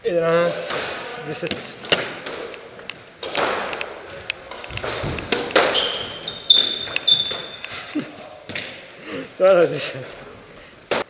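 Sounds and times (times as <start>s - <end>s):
shoes squeaking on wooden floor: 0.3s - 9.0s
ball hitting walls: 0.5s - 7.8s, 8.4s - 8.9s
racket striking squash ball: 0.6s - 7.9s.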